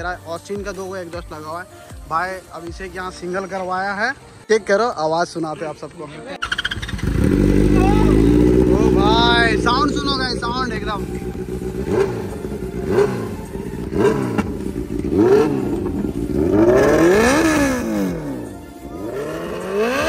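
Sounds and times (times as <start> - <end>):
motorcycle engine revving: 6.4 - 20.0.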